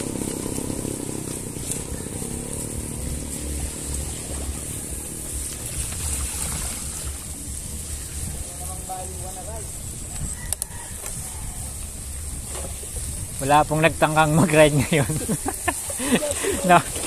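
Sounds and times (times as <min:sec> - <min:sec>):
bicycle road noise: 0:00.0 - 0:17.0
motorcycle engine passing: 0:00.0 - 0:17.0
wind rumble: 0:00.0 - 0:17.0.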